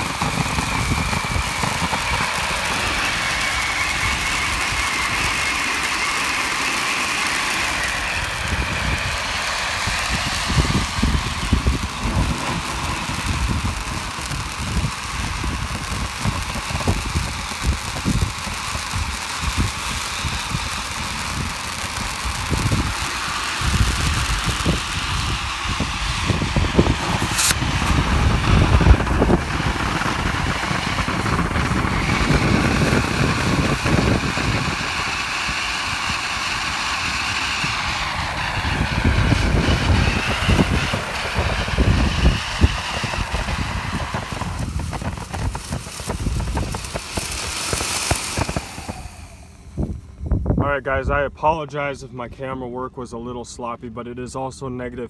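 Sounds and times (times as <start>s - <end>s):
firework crackles: 0.0s - 52.0s
firework fountain spraying sparks: 0.0s - 52.3s
low rumble: 0.0s - 53.1s.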